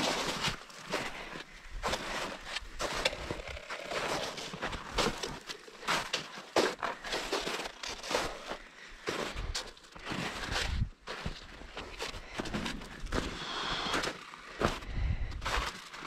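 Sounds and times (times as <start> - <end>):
boots crunching through snow: 0.0 - 16.0
trekking poles planting in snow: 0.0 - 16.0.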